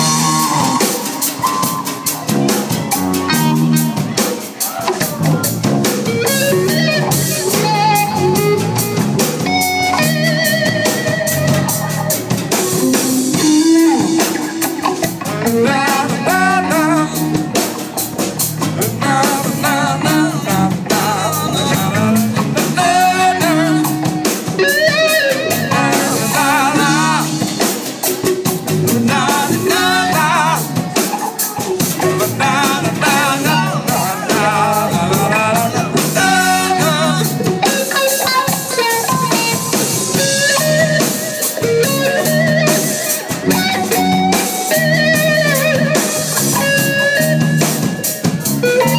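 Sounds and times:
electric bass: 0.0s - 4.3s, 5.0s - 31.0s, 31.6s - 48.9s
drum kit: 0.0s - 48.9s
electric guitar: 0.0s - 48.9s
man singing: 12.8s - 18.0s, 18.6s - 46.0s.

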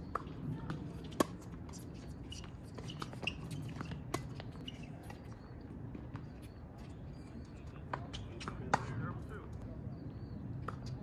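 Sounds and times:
tennis ball bouncing: 0.0s - 4.6s, 7.9s - 9.0s
shoe squeaks: 1.0s - 5.5s.

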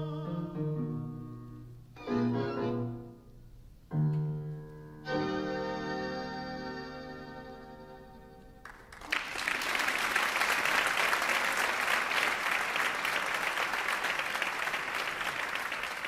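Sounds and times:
audience applause: 8.6s - 16.0s.

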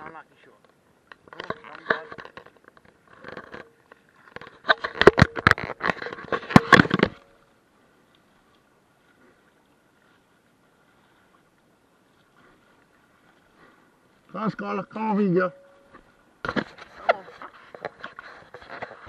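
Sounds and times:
camera handling rubbing and scraping: 1.2s - 7.3s, 16.4s - 19.0s.

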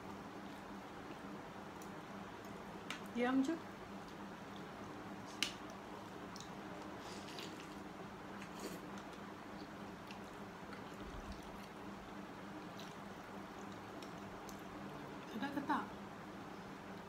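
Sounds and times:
faint steady hum: 0.0s - 17.0s
slurping and chewing: 6.3s - 11.9s, 12.6s - 14.7s.

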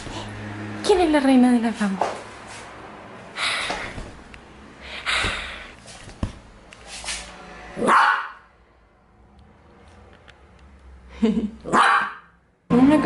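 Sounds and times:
small dog barking: 7.8s - 8.4s, 11.7s - 12.3s.

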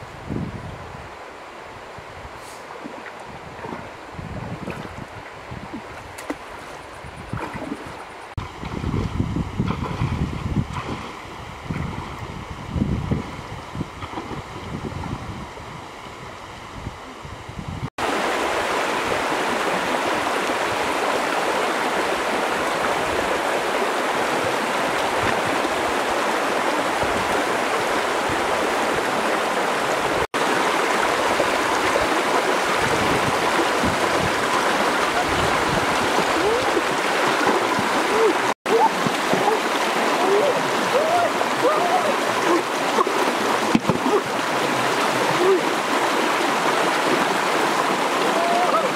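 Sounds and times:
wind rumble on microphone: 0.0s - 2.4s, 3.2s - 17.9s, 31.4s - 38.3s
river water rushing: 0.0s - 16.8s, 18.0s - 48.9s.

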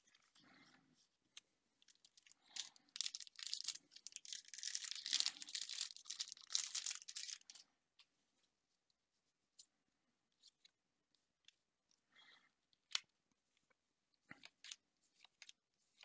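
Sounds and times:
foil wrapper tearing and crinkling: 2.0s - 7.6s.

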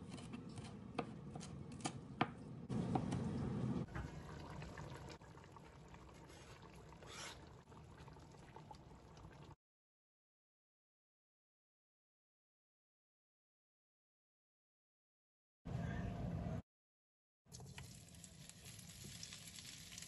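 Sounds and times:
stew simmering and bubbling: 0.0s - 9.6s, 17.5s - 20.0s
knife chopping on plastic board: 0.1s - 3.2s
wooden spatula scraping pot: 6.1s - 7.7s.

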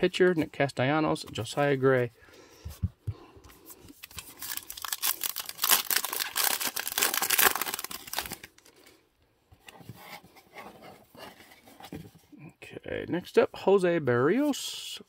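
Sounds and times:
cards rustling: 3.7s - 8.9s
wrapper tearing and crinkling: 4.0s - 8.7s.

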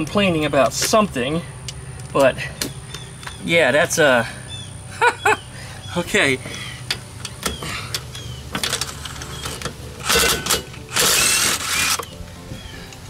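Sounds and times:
impact wrench bursts: 7.9s - 12.1s.

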